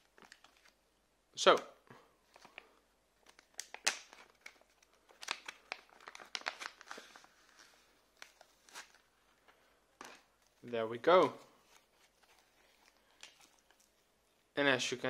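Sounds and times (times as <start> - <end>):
packaging crinkling: 0.0 - 0.8, 2.2 - 9.1, 11.6 - 14.1.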